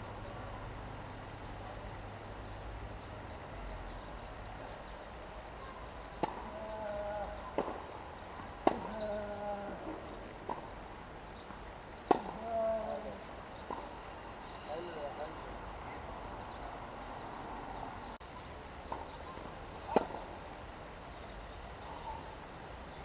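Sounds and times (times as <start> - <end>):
tennis ball bouncing: 6.1 - 6.6, 7.6 - 7.9, 8.6 - 9.2, 9.8 - 10.8, 12.0 - 12.4, 13.6 - 13.9, 19.9 - 20.2
tennis racket striking ball: 6.2 - 6.6, 8.6 - 9.2, 12.1 - 12.4.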